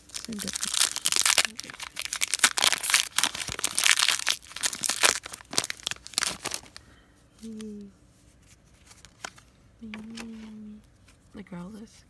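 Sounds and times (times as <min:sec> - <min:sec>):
wrapper crinkling and tearing: 0:00.0 - 0:06.8.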